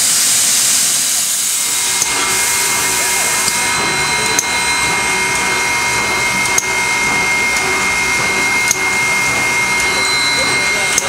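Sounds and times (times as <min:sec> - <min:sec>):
mechanical whine: 0:00.0 - 0:11.0
steam hissing: 0:00.0 - 0:11.0
sharp clicks: 0:03.4 - 0:06.8, 0:07.5 - 0:10.0.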